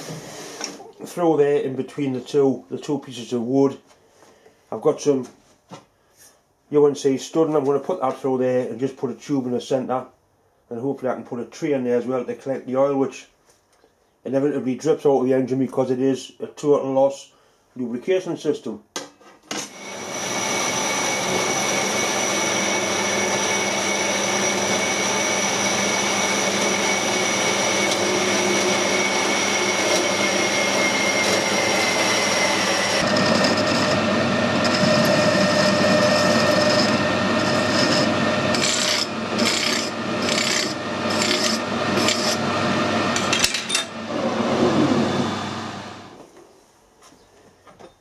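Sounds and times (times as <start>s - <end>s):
band saw cutting metal: 19.5s - 45.9s
file rasping on metal: 34.6s - 42.4s.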